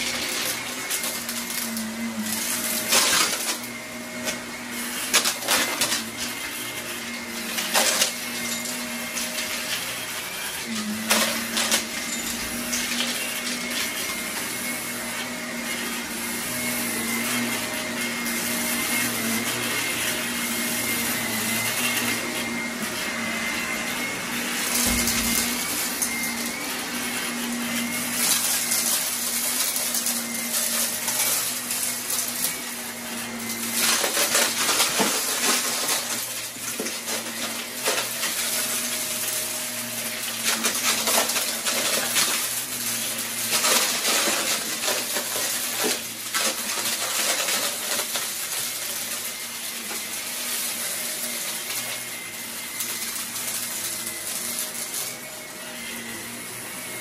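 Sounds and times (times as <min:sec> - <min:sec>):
vacuum cleaner motor whine: 0:00.0 - 0:57.0.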